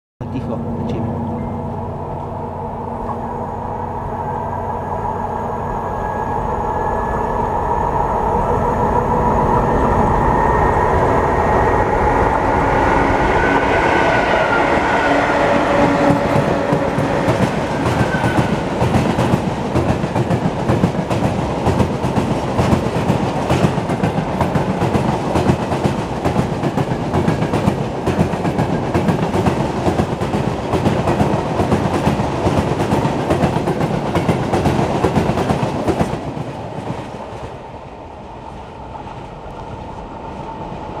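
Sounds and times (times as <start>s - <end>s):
freight train rolling past: 0.2s - 41.0s.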